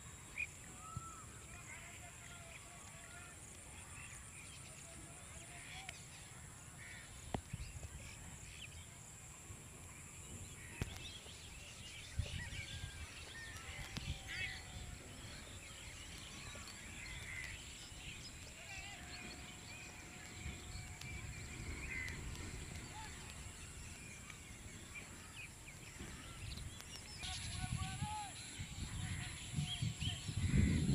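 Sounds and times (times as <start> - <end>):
wind rumble on microphone: 9.5 - 30.9.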